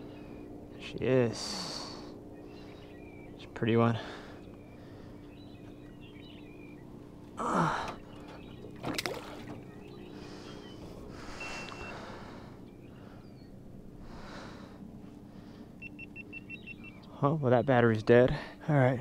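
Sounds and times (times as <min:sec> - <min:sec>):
low hum: 0:00.0 - 0:19.0
person breathing loudly: 0:10.2 - 0:13.4, 0:14.0 - 0:15.8.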